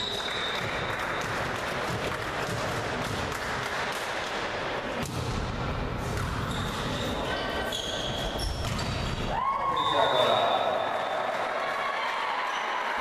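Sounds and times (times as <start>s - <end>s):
applause: 0.0s - 3.8s
volleyball being struck: 5.0s - 6.4s
sneakers squeaking on court: 6.0s - 10.8s.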